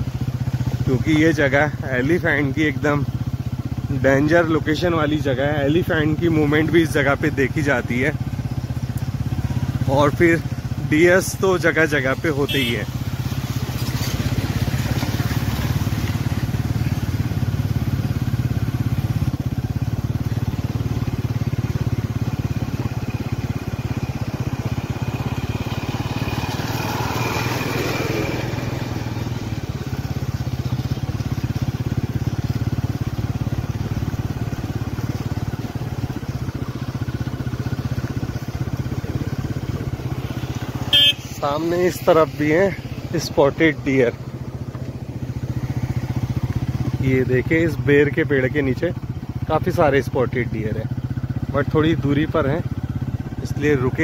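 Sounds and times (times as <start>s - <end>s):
road noise: 0.0s - 54.0s
vehicle engine running: 0.0s - 54.0s.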